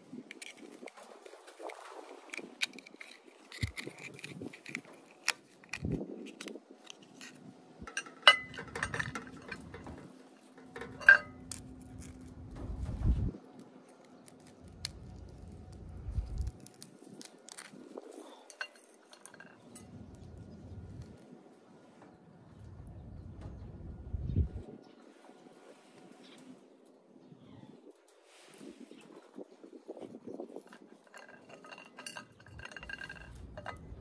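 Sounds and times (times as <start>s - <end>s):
knife scraping oyster shells: 0.2s - 9.8s, 10.7s - 12.2s, 14.0s - 19.6s, 30.9s - 33.9s
shell clinking on ceramic plate: 7.9s - 9.8s, 10.8s - 11.5s, 31.1s - 33.8s.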